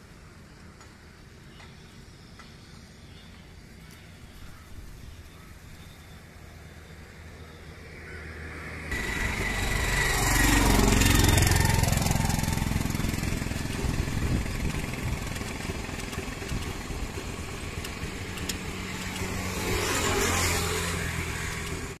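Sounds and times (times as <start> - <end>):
vehicles passing by: 0.0 - 22.0.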